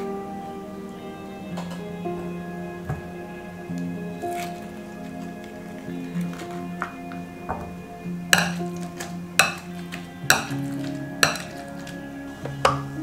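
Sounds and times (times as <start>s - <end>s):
background music: 0.0s - 13.0s
metal utensil clinking on glass bowl: 10.3s - 11.9s.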